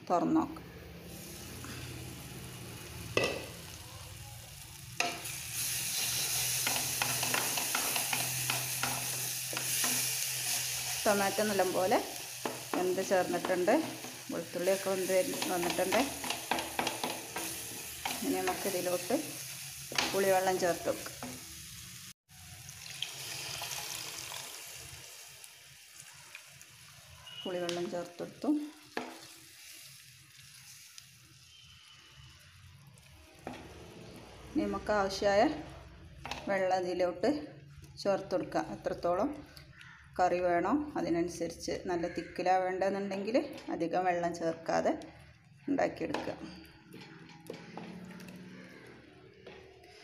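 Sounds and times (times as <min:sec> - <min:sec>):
masala sizzling in a pan: 0:00.8 - 0:37.8
liquid trickling into pan: 0:22.4 - 0:25.2.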